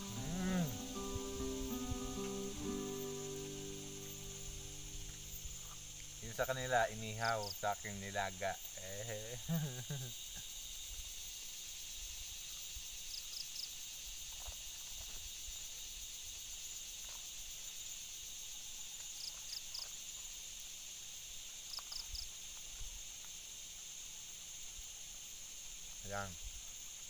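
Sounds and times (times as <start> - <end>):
insect chorus: 0.0 - 27.0.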